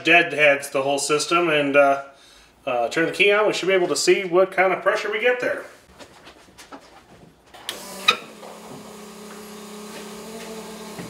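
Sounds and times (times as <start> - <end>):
fuel pump humming: 7.7 - 11.0.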